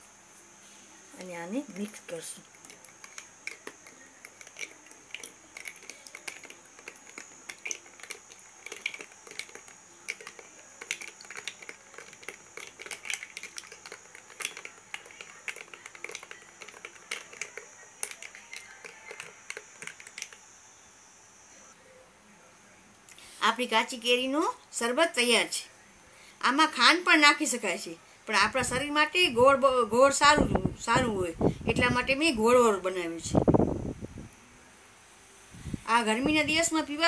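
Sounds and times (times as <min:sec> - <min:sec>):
spoon clinking ice in glass: 0:02.6 - 0:20.4.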